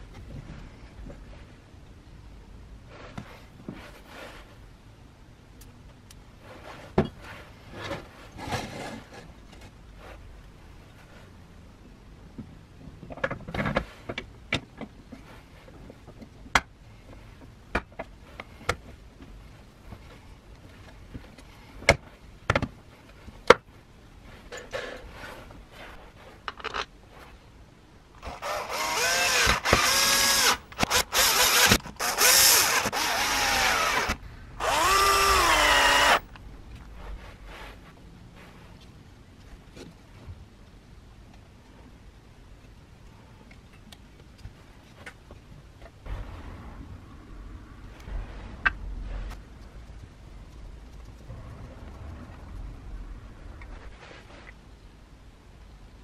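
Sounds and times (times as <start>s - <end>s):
power screwdriver driving screws: 28.2s - 36.2s.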